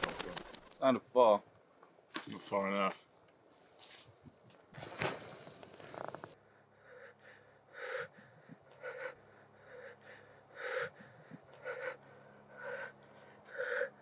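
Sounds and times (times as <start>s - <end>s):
man breathing hard: 6.4s - 14.0s.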